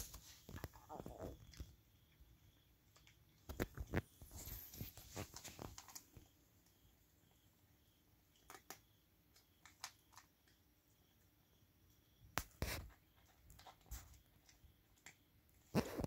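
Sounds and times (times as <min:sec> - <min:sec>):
cat crunching dry kibble: 0:05.2 - 0:06.2.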